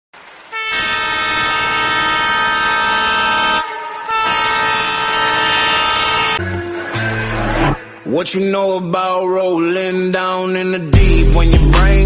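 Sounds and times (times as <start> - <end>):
train horn blasts: 0.5 - 6.4.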